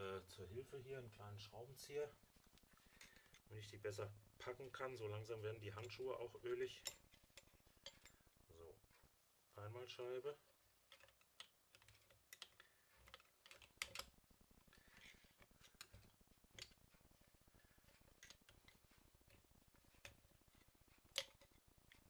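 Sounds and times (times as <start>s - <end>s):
screwdriver clicking on metal plates: 10.9s - 14.2s, 17.9s - 22.0s.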